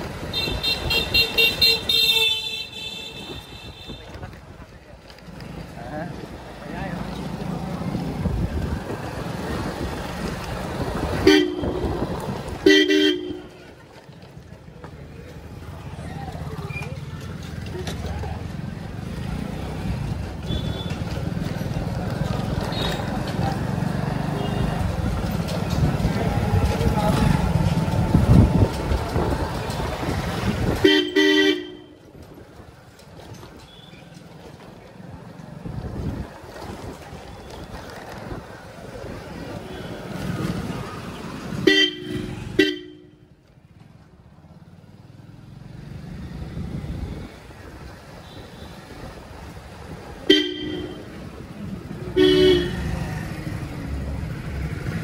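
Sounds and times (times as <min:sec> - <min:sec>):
motorcycle running in traffic: 0:00.0 - 0:55.0
vehicle horn honking: 0:11.2 - 0:11.9, 0:12.6 - 0:13.5, 0:30.8 - 0:31.9, 0:41.6 - 0:43.2, 0:50.3 - 0:51.0, 0:52.2 - 0:52.9.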